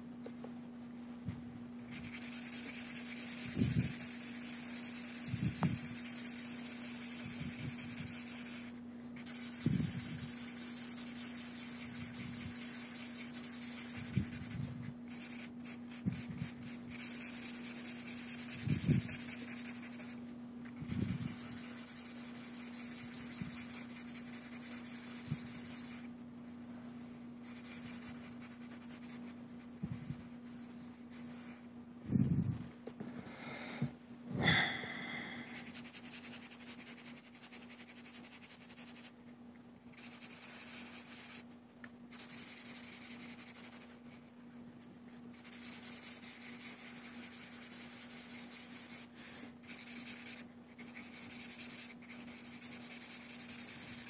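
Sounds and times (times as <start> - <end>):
soft low thumps: 1.2 - 1.7, 32.0 - 34.6
marker scratching on paper: 1.9 - 20.2, 20.8 - 26.1, 26.9 - 31.6, 35.5 - 39.1, 39.9 - 41.5, 42.1 - 44.2, 45.3 - 54.0.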